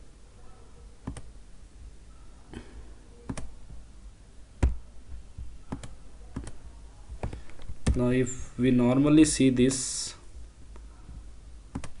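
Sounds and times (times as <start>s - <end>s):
computer mouse clicking: 1.0s - 1.3s, 3.3s - 3.5s, 5.7s - 6.6s, 11.7s - 12.0s.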